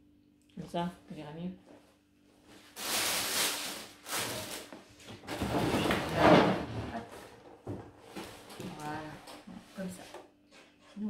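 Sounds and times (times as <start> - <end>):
plastic packaging rustling: 2.6 - 6.6.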